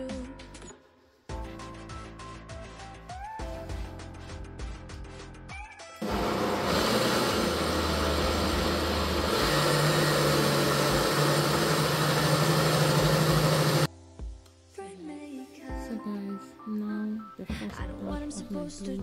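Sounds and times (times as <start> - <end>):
blender motor grinding: 6.0 - 13.9.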